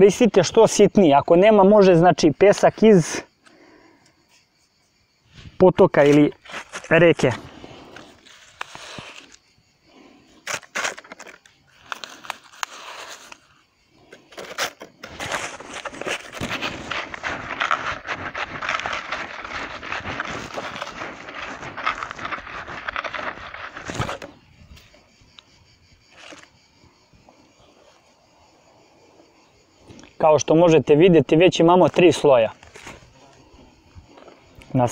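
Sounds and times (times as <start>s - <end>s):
plastic being handled: 6.0s - 9.4s, 10.4s - 13.6s, 14.2s - 24.4s.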